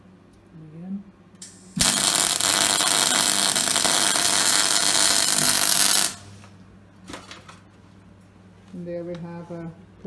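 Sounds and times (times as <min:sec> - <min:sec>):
welding arc hissing: 0:01.4 - 0:06.3.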